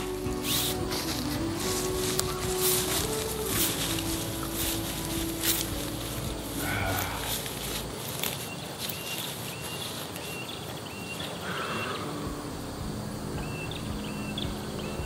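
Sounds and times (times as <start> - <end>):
footsteps through undergrowth: 0.0 - 12.0.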